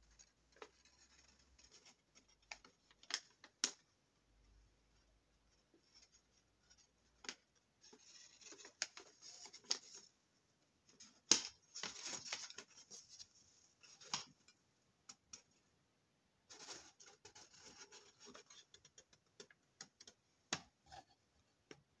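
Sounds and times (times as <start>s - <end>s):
paper rustling and crinkling: 5.8s - 10.1s, 10.9s - 14.5s
paper crackling: 10.9s - 14.4s.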